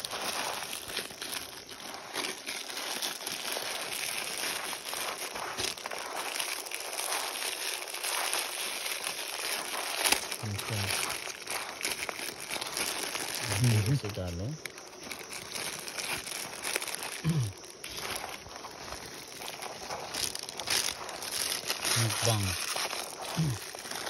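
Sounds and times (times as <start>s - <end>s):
dry noodles crunching by hand: 0.0s - 24.0s
plastic packaging crinkling: 0.0s - 24.0s.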